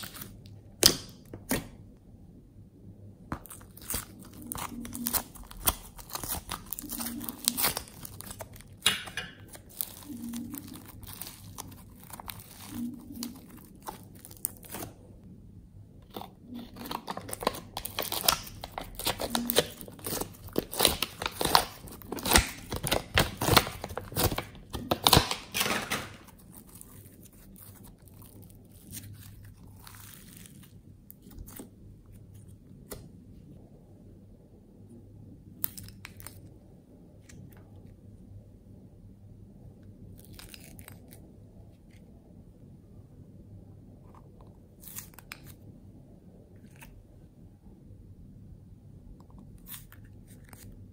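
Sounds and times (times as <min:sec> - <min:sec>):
slime crackling and tearing: 0:00.0 - 0:01.7, 0:03.4 - 0:15.0, 0:16.0 - 0:33.0, 0:40.1 - 0:41.3.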